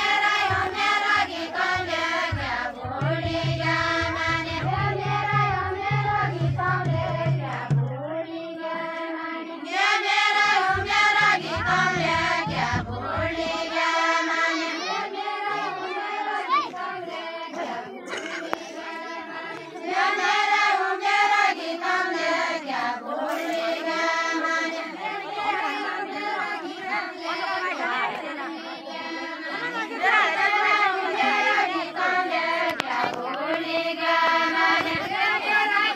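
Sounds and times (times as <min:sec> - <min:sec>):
women singing without instruments: 0:00.0 - 0:18.1.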